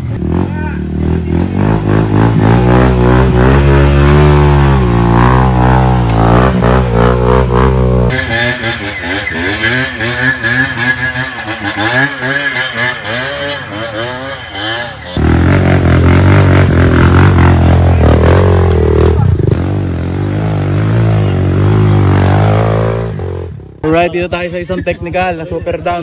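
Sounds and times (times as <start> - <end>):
dirt bike engines revving: 0.0 - 26.0.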